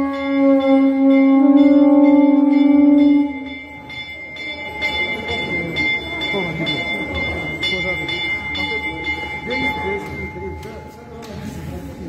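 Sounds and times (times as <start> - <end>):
long blown horn note: 0.0 - 3.6
crowd voices: 0.0 - 12.0.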